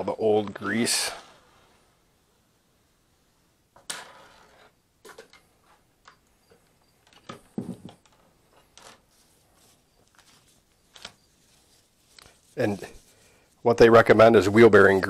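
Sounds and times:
paper towel rustling: 9.0s - 15.0s.

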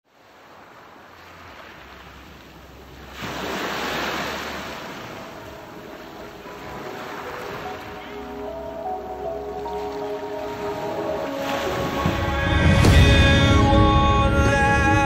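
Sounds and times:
sea surf washing onto shore: 0.1s - 8.4s, 9.3s - 13.8s.

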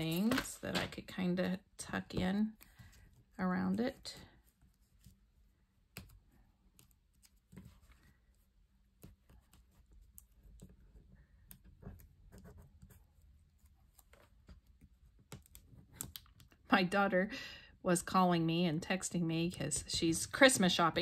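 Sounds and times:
paper taps and rustles: 0.0s - 1.1s.

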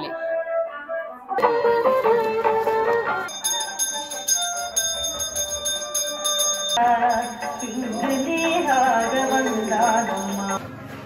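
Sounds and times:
hand bell rung rapidly: 3.3s - 10.6s.

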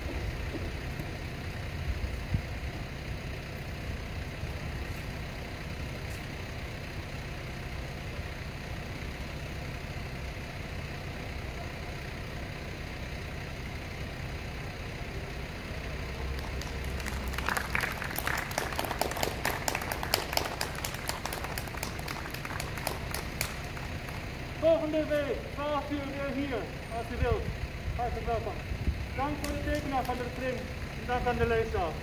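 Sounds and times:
low rumble of city background: 0.0s - 32.0s
people clapping: 16.1s - 24.4s, 29.2s - 31.0s.

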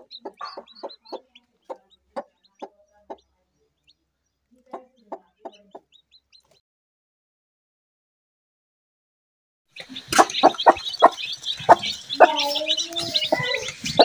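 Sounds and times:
chicks peeping: 0.0s - 6.6s, 9.8s - 14.0s
hen clucking: 0.0s - 6.6s, 9.8s - 14.0s.

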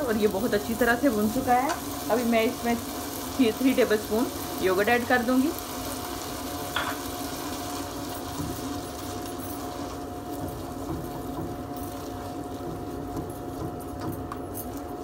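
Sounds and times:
paste sizzling in pot: 0.0s - 14.1s
spatula stirring: 5.6s - 15.0s.

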